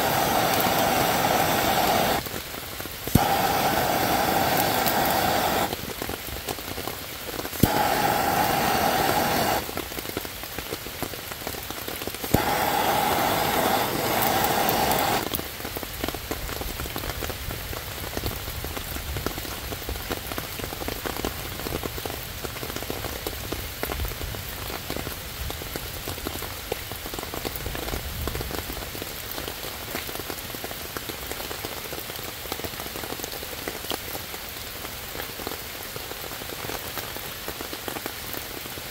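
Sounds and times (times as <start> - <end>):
gas torch hissing: 0.0 - 2.3, 3.0 - 5.9, 7.4 - 9.9, 12.2 - 15.4
rain pattering on leaves: 0.0 - 38.9.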